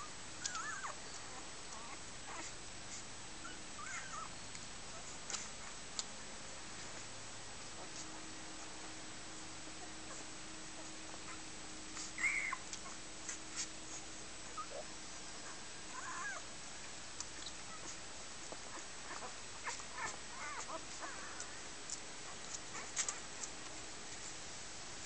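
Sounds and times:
puppies squeaking and whimpering: 0.4 - 4.3, 12.0 - 13.0, 14.6 - 16.5, 18.7 - 21.6.

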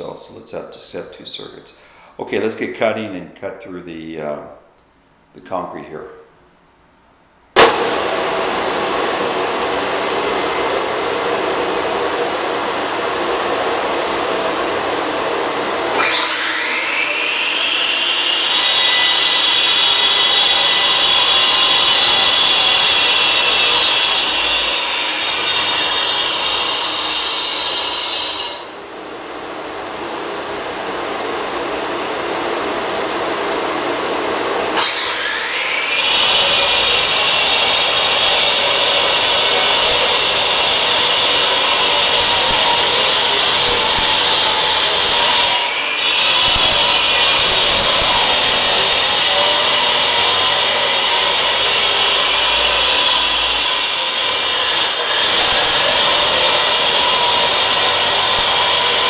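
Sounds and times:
concrete saw grinding: 7.6 - 28.8, 33.9 - 59.0
shop vacuum running: 7.6 - 59.0.

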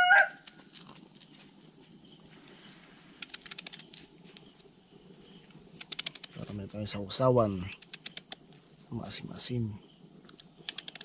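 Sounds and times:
rooster crowing: 0.0 - 0.5
faint background noise: 0.0 - 11.0.

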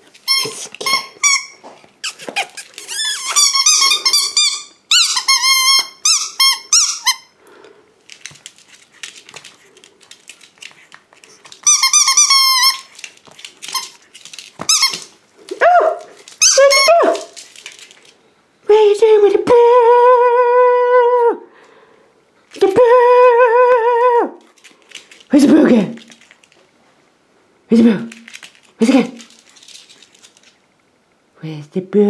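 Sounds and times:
rubber squeaky toy squeaking: 0.3 - 7.3, 11.6 - 12.9, 14.7 - 15.1, 16.4 - 17.3.

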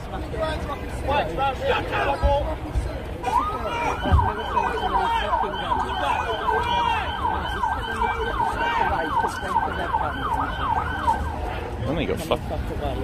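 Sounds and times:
emergency siren yelping: 3.2 - 11.8.

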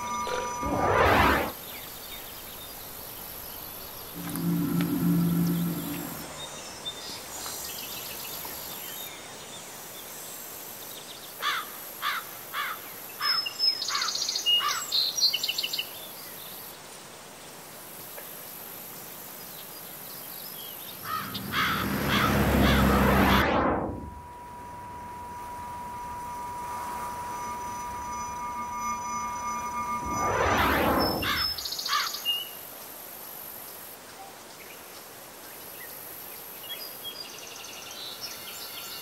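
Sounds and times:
rushing sound with low hum: 0.0 - 6.6, 21.0 - 31.6
steady background hiss: 0.0 - 21.2, 31.0 - 39.0
birds twittering: 20.5 - 23.3
birds chirping: 20.6 - 23.3.

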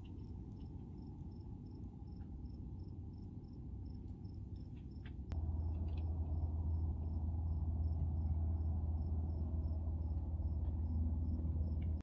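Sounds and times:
cricket chirping: 0.0 - 12.0
low hum: 0.0 - 12.0.

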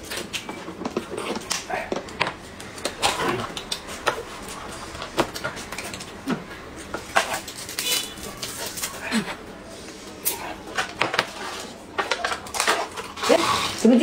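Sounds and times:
swallowing: 1.2 - 7.1.

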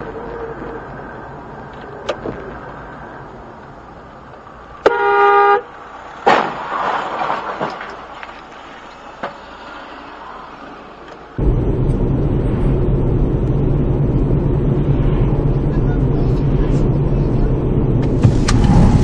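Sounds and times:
car engine and tyre noise: 0.0 - 19.0
car horn: 4.8 - 5.7.

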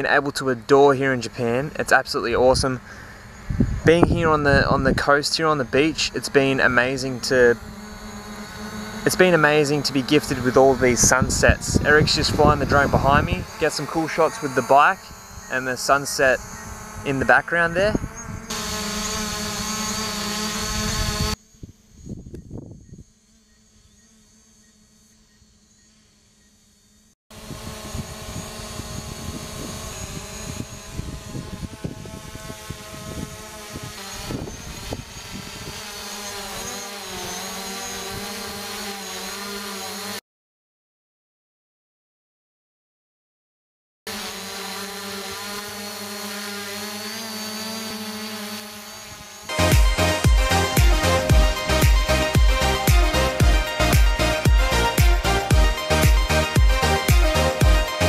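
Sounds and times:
faint distant drone hum: 0.0 - 38.0
drone propellers buzzing: 0.0 - 40.2, 44.1 - 58.0.

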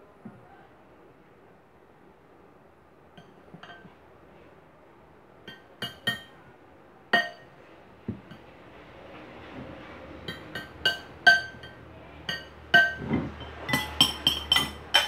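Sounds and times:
metal spoon clinking against glass bowl: 5.5 - 6.4, 10.2 - 15.0.

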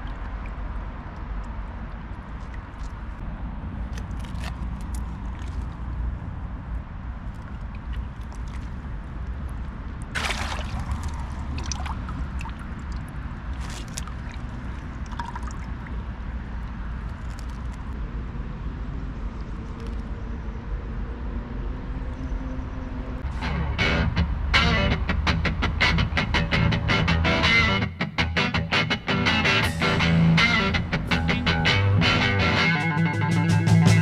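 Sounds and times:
water splashing and sloshing: 0.0 - 18.0
steady low rumble: 0.0 - 27.6.

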